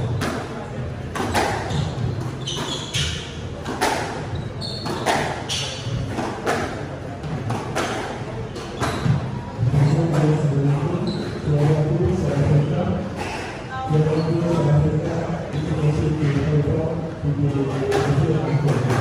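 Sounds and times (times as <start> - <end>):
shoes squeaking on wooden floor: 1.2 - 6.6, 7.2 - 14.9
squash ball cracking off rackets: 4.8 - 9.1.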